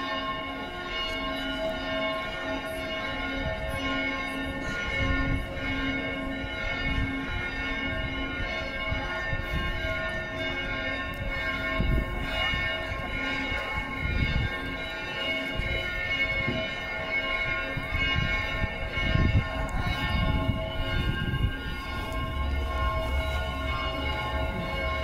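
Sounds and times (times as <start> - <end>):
church bells pealing: 0.0 - 25.0
low rumble: 20.0 - 25.0.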